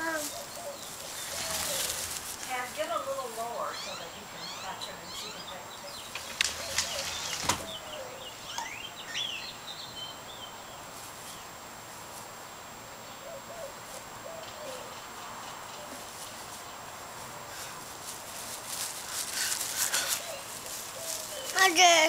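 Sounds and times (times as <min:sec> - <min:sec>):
birds chirping: 0:00.0 - 0:11.6, 0:13.0 - 0:22.0
sharp clicks: 0:06.0 - 0:07.6.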